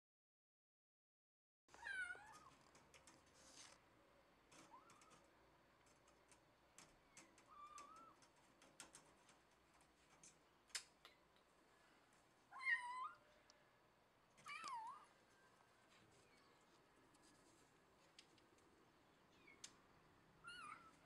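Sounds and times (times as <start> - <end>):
light clicks and taps: 2.2 - 3.8, 4.5 - 11.5
cat meowing: 12.5 - 13.2, 14.4 - 15.1, 20.4 - 21.0.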